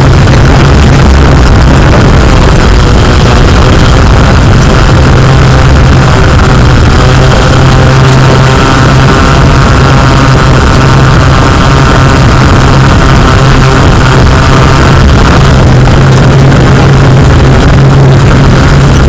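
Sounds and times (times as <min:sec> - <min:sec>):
drone propellers humming: 0:00.0 - 0:19.0.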